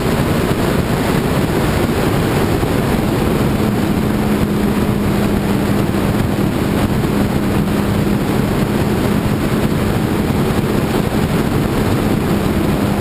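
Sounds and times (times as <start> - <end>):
motorcycle engine cruising: 0.0 - 13.0
road rumble: 0.0 - 13.0
wind buffeting microphone: 0.0 - 13.0.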